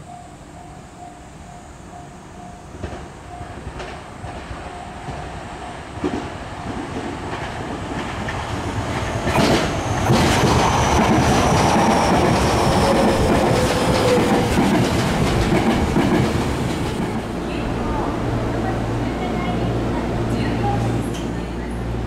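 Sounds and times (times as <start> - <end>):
train wheels clattering over joints: 6.0 - 17.4.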